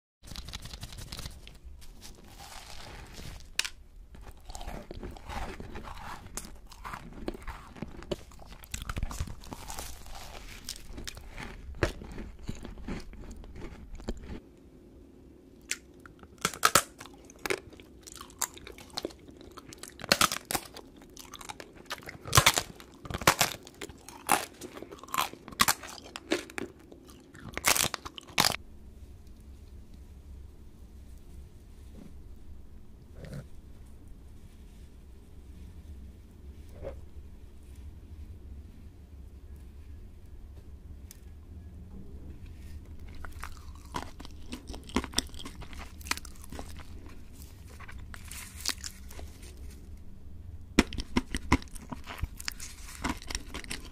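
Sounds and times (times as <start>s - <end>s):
crunching and chewing: 0.3s - 14.5s, 15.5s - 28.6s, 42.5s - 50.0s, 50.7s - 53.9s.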